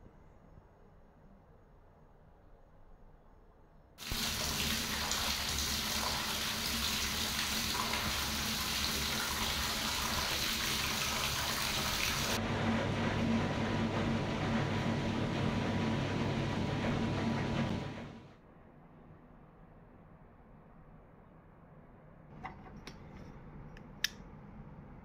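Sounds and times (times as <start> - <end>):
bath tap running hard: 4.0 - 12.4
spa bath jets churning water: 4.0 - 18.3
low pump hum: 4.0 - 18.4.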